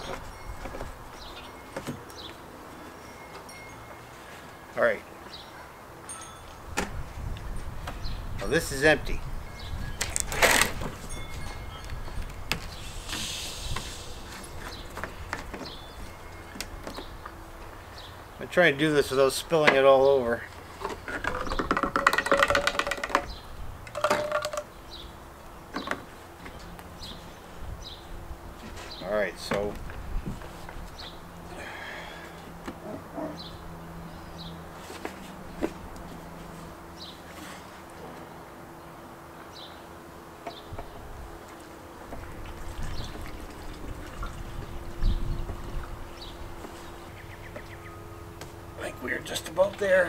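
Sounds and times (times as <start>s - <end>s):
plastic spout clicking and creaking: 10.0s - 11.0s, 20.8s - 24.7s.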